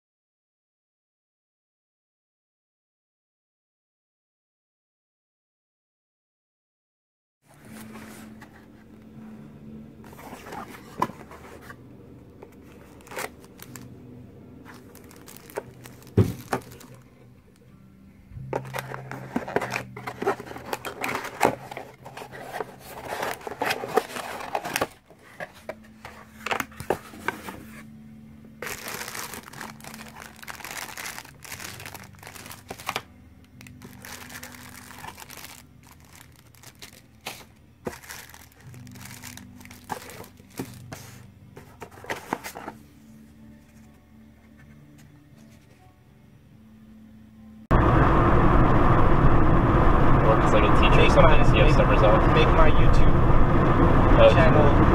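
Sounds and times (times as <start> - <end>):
cardboard crinkling and tearing: 10.1 - 11.7, 12.7 - 13.8, 14.6 - 17.1, 18.6 - 27.9, 28.6 - 42.8.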